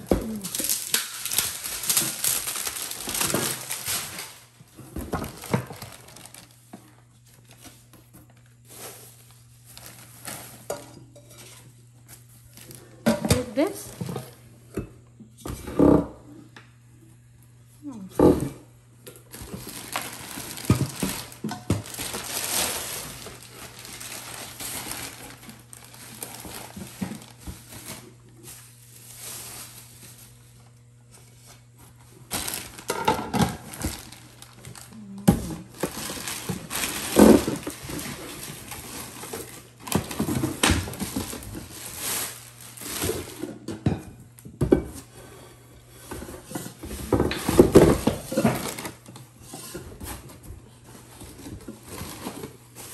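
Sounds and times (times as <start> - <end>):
plastic wrapping crinkling: 0.0 - 10.8, 19.1 - 30.8, 31.8 - 43.6, 47.0 - 49.1, 51.0 - 52.9.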